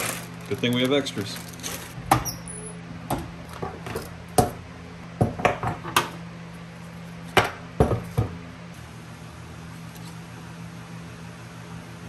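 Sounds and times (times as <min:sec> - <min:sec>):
tools knocking on wooden workbench: 0:05.2 - 0:06.1, 0:07.4 - 0:08.4.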